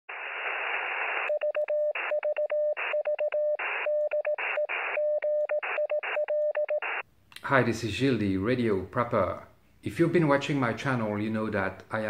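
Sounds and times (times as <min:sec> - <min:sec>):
radio static hiss: 0:00.1 - 0:02.1, 0:03.6 - 0:05.0, 0:06.8 - 0:07.0
morse code tone: 0:01.3 - 0:07.0.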